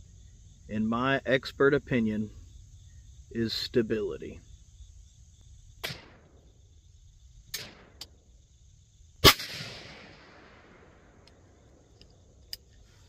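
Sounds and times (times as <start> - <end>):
faint sharp crack: 5.8 - 6.4
rifle shot with echo: 5.8 - 6.4, 7.5 - 8.2, 9.2 - 11.9.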